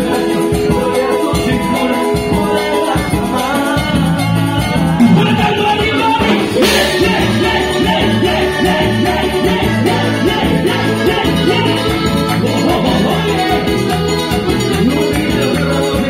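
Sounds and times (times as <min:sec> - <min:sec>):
live band playing dance music: 0:00.0 - 0:16.0
person singing: 0:00.0 - 0:16.0.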